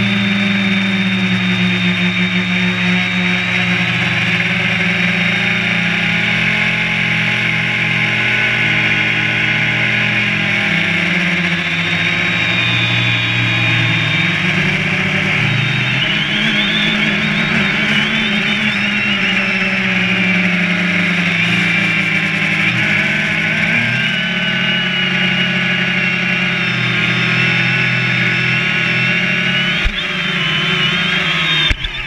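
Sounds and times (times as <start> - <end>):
drone propellers buzzing: 0.0 - 32.0.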